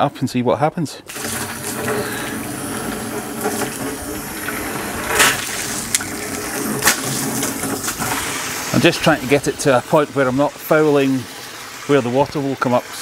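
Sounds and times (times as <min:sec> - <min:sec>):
water pouring into plastic butt: 0:01.1 - 0:13.0.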